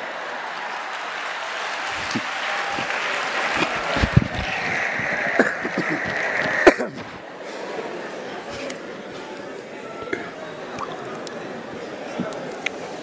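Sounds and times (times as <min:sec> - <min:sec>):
congregation applauding: 0:00.0 - 0:07.2
voices calling out: 0:01.9 - 0:07.8.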